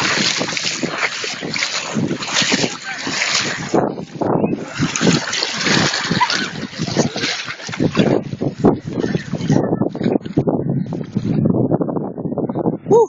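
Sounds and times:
feet splashing through water: 0:00.0 - 0:09.6
wind noise on microphone: 0:00.0 - 0:13.0.

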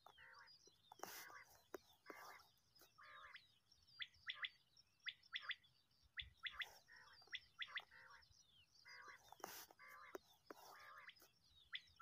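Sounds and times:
quail calling: 0:00.0 - 0:03.4, 0:06.2 - 0:08.2, 0:08.8 - 0:12.0.

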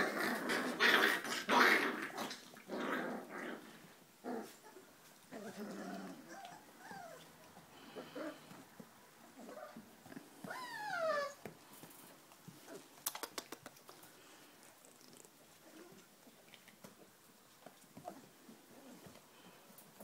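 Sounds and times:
puppy whining: 0:04.3 - 0:08.6, 0:09.3 - 0:11.6
quick clicks: 0:13.0 - 0:14.0.

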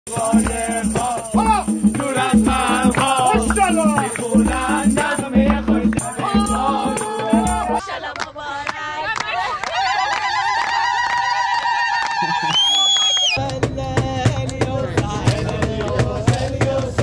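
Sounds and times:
person singing: 0:00.1 - 0:07.8
pulsing bass beat: 0:00.1 - 0:07.8
shaker percussion hissing: 0:00.1 - 0:07.8.

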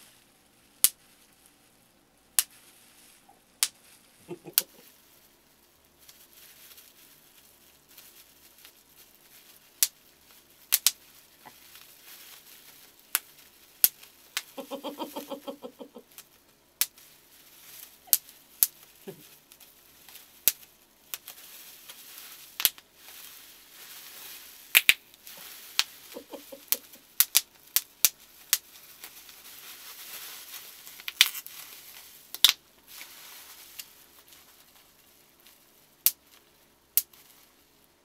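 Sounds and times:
bubble wrap popping: 0:00.0 - 0:38.0
plastic crinkling: 0:00.0 - 0:38.0
person laughing: 0:04.2 - 0:04.9, 0:14.5 - 0:16.0, 0:19.0 - 0:19.3, 0:26.1 - 0:27.0.

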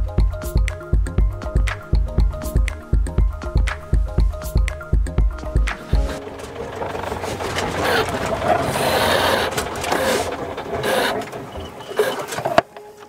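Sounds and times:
boat engine rattling: 0:03.3 - 0:12.7.

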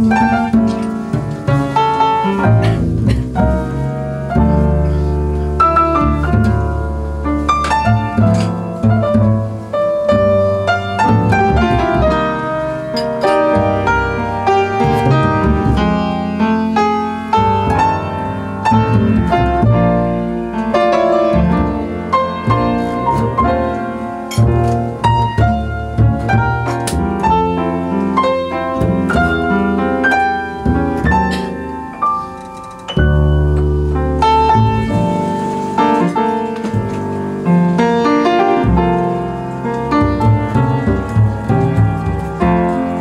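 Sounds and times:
piano playing jazz: 0:00.0 - 0:43.0
plucked double bass: 0:00.0 - 0:43.0.

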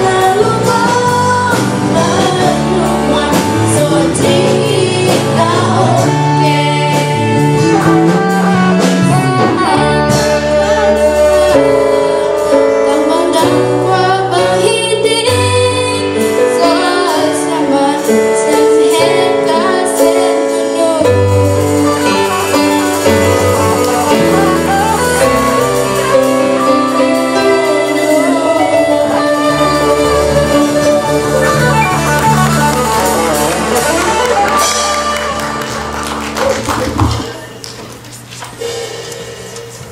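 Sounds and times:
women singing into microphones: 0:00.0 - 0:31.8
live instrumental accompaniment: 0:00.0 - 0:39.9.

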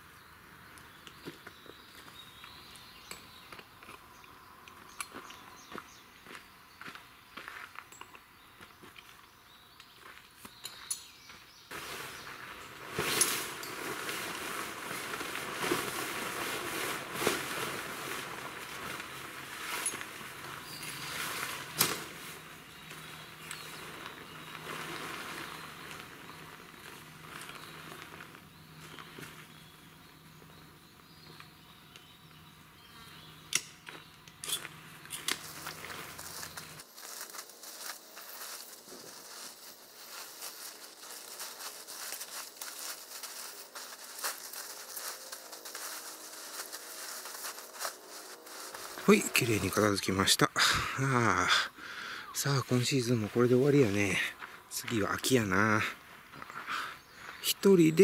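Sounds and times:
tent fabric rustling: 0:11.7 - 0:29.8, 0:34.6 - 0:50.4
tent poles clicking and snapping: 0:12.6 - 0:29.4, 0:33.4 - 0:49.2.

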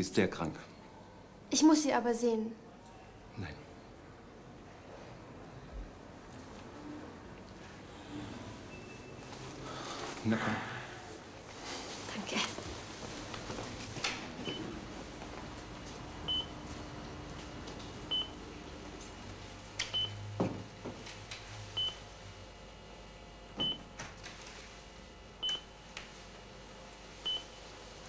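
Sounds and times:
patient monitor beeping: 0:08.6 - 0:10.2, 0:14.4 - 0:14.8, 0:16.3 - 0:16.6, 0:18.1 - 0:18.4, 0:19.9 - 0:20.3, 0:23.6 - 0:23.8, 0:25.4 - 0:25.7, 0:27.2 - 0:27.6.

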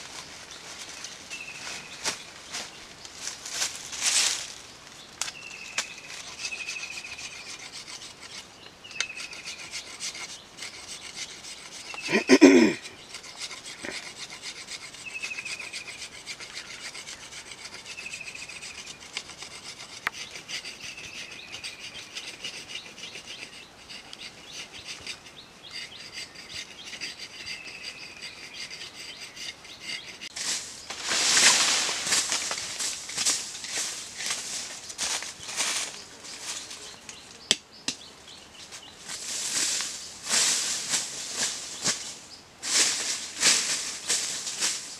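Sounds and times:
dry leaves rustling underfoot: 0:00.0 - 0:06.7, 0:30.3 - 0:37.4, 0:38.5 - 0:44.9
knife shaving wood: 0:09.0 - 0:30.4.

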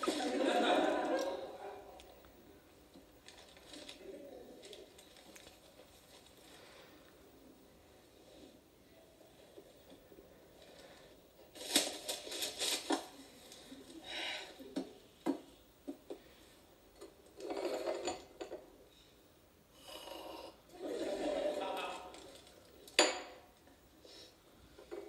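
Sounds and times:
newspaper pages rustling: 0:11.5 - 0:13.7
crockery and cutlery clinking: 0:17.0 - 0:18.7, 0:22.9 - 0:23.6.

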